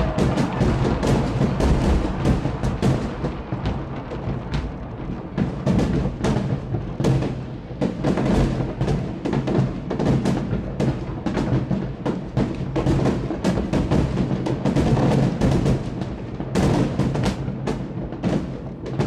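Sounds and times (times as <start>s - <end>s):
continuous low rumble: 0.0s - 7.8s
fireworks bursting with sharp bangs: 0.0s - 19.0s.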